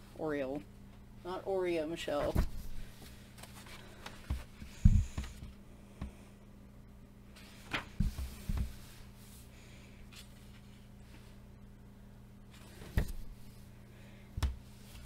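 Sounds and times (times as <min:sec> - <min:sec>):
steady low hum: 0:00.0 - 0:15.0
book pages turning and thumping: 0:02.1 - 0:05.5, 0:07.4 - 0:09.0, 0:12.6 - 0:13.3.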